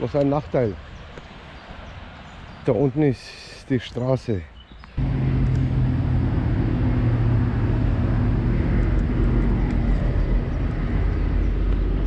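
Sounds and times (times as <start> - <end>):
road traffic engine hum: 4.8 - 12.0.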